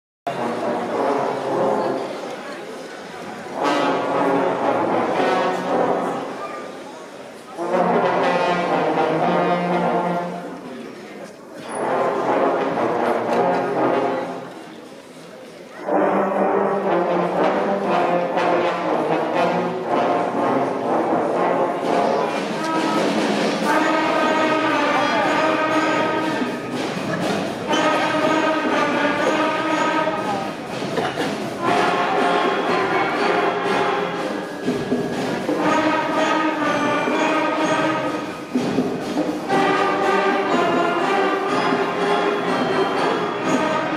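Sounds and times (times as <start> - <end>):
concert band playing: 0.3 - 2.3, 3.2 - 6.4, 7.4 - 10.6, 11.8 - 14.6, 15.8 - 43.9
trombones: 0.3 - 10.8, 11.6 - 14.7, 15.7 - 43.9
trumpets: 0.3 - 10.8, 11.6 - 14.6, 15.7 - 43.9
saxophones: 15.8 - 43.9.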